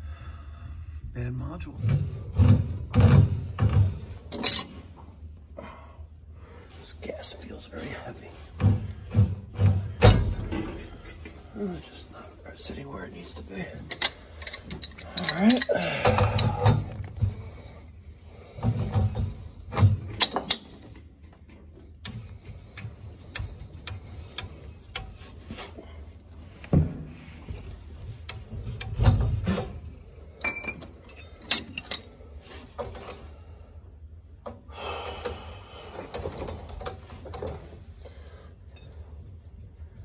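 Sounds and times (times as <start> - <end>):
wrench clicking and scraping metal: 13.9 - 17.1.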